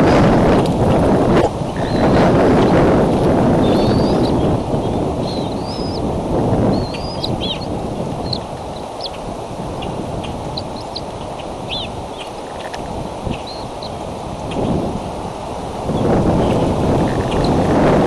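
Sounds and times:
wind noise on microphone: 0:00.0 - 0:18.0
high bird chirps: 0:03.6 - 0:04.5, 0:05.2 - 0:06.0, 0:06.7 - 0:09.2, 0:10.5 - 0:11.1, 0:11.7 - 0:12.7.

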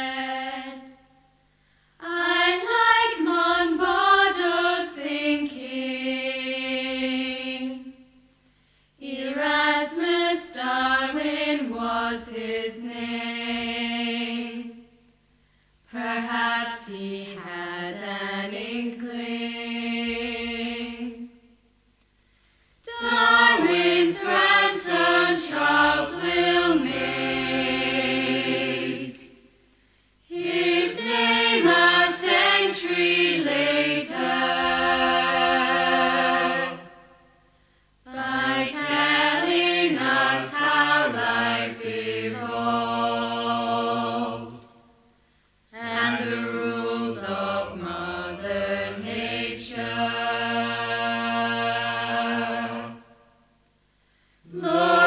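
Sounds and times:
chorus singing: 0:00.0 - 0:01.2, 0:02.0 - 0:08.2, 0:09.0 - 0:15.0, 0:15.9 - 0:21.6, 0:22.8 - 0:29.6, 0:30.2 - 0:45.1, 0:45.7 - 0:53.4, 0:54.5 - 0:55.0.

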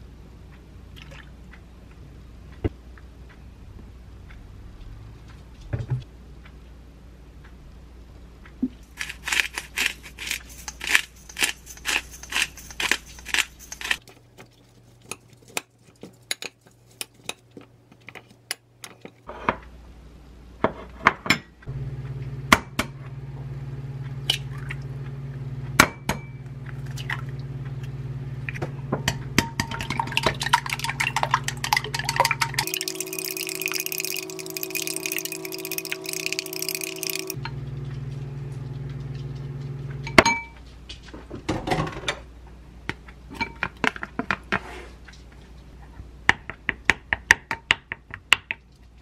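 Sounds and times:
low steady hum: 0:21.5 - 0:41.1
metal spoon clinking ceramic bowl: 0:30.5 - 0:37.4
chopsticks tapping glass bowl: 0:30.7 - 0:37.4.

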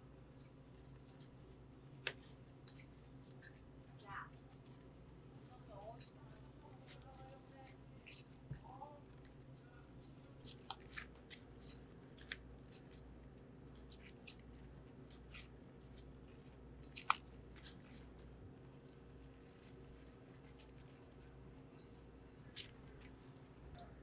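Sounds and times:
steady low hum: 0:00.0 - 0:24.0
green onions snapping and rustling: 0:10.4 - 0:23.7.

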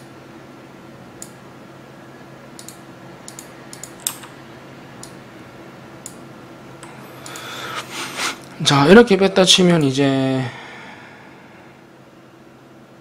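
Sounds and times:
keyboard and mouse clicking: 0:02.6 - 0:04.3.

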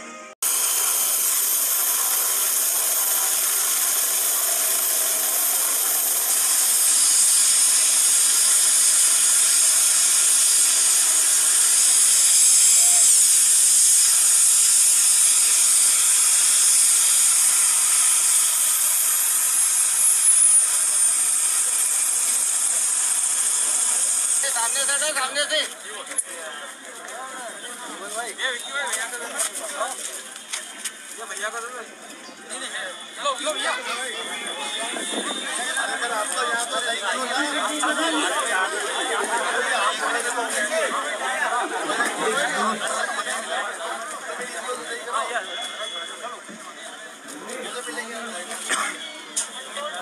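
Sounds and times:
helicopter turbine whine: 0:00.4 - 0:25.1.

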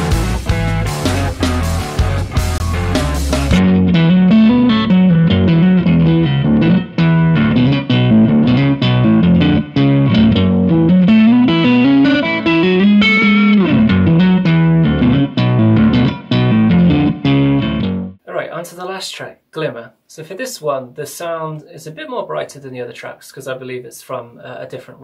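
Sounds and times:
recorded song playing: 0:00.0 - 0:06.4
overdriven electric guitar riff: 0:00.0 - 0:18.2.

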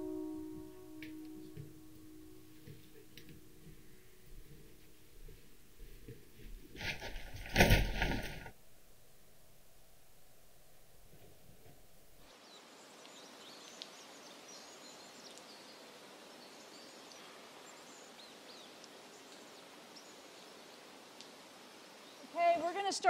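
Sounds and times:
low room hum: 0:00.0 - 0:06.8
steady outdoor hiss: 0:00.0 - 0:23.0.

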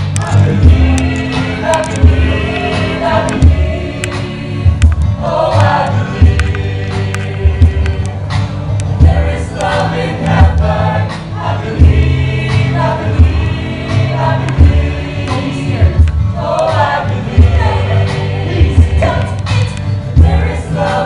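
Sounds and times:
ensemble singing in choral harmony: 0:00.0 - 0:21.0
instrumental accompaniment with bass: 0:00.0 - 0:21.0.

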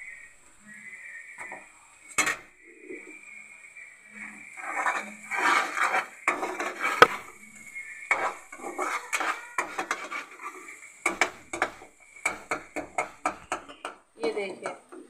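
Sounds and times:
metal spoon scraping a pot: 0:04.6 - 0:07.3, 0:08.1 - 0:11.8.

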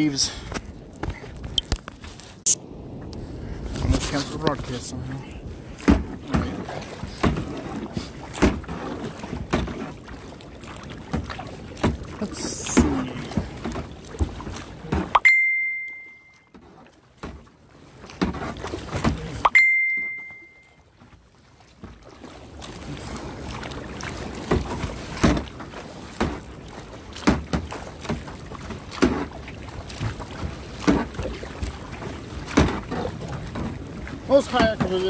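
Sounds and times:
kayak splashing on waves: 0:00.0 - 0:35.0
wind on microphone: 0:00.6 - 0:08.2
bright ringing dings: 0:15.2 - 0:16.5, 0:19.5 - 0:20.8.

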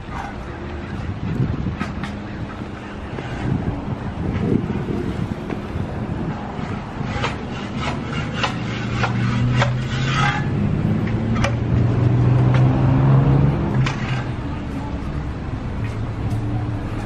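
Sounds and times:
wind rumble on microphone: 0:00.0 - 0:17.0
footsteps on pavement: 0:00.6 - 0:06.0, 0:14.6 - 0:17.0.

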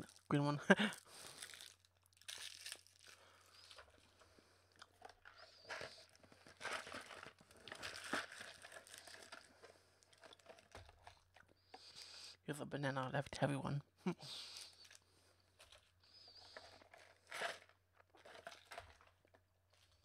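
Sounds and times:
plastic wrappers rustling: 0:00.0 - 0:04.2, 0:05.0 - 0:11.5, 0:15.6 - 0:20.0
cardboard box crinkling: 0:05.5 - 0:11.2, 0:16.6 - 0:19.3.

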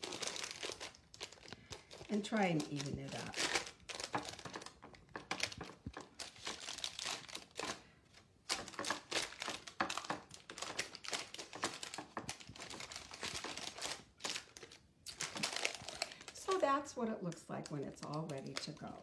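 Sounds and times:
parchment paper crinkling: 0:00.0 - 0:19.0.

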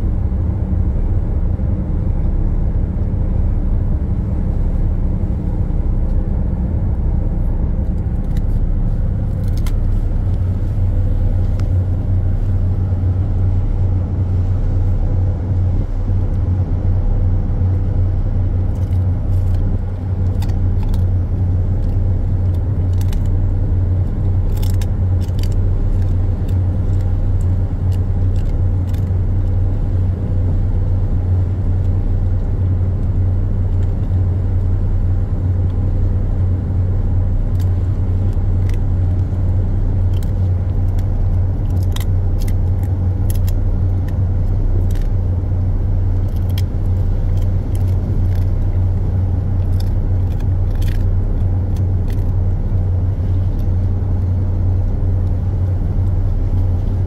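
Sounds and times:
ship machinery hum: 0:00.0 - 0:57.0
dog gnawing a treat: 0:18.7 - 0:21.1, 0:21.7 - 0:23.4, 0:24.4 - 0:29.5, 0:37.5 - 0:38.9, 0:40.0 - 0:45.2, 0:46.1 - 0:53.8.

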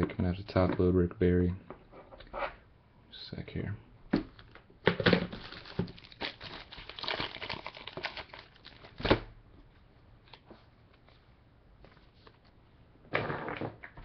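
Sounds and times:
plastic sleeve crinkling and clicking: 0:04.3 - 0:09.2.

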